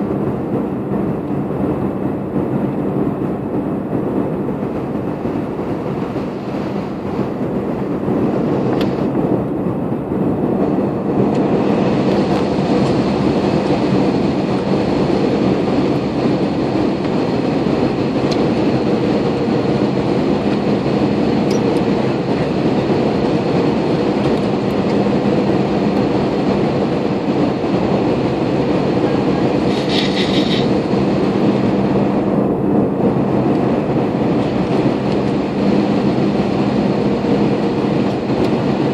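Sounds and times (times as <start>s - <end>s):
constant hum: 0.0s - 38.9s
jet engine roar: 0.0s - 38.9s
rushing air: 0.0s - 38.9s.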